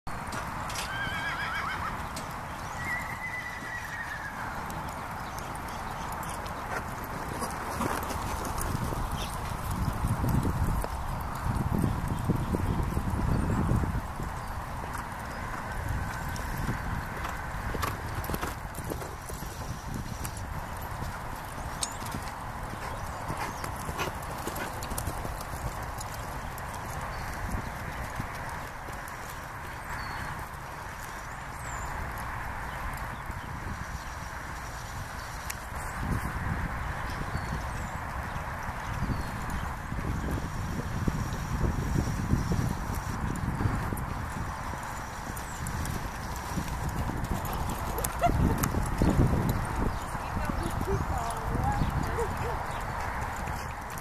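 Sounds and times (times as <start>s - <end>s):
hoofbeats on soft dirt: 0.1s - 54.0s
horse whinnying: 0.7s - 2.0s, 2.8s - 4.5s.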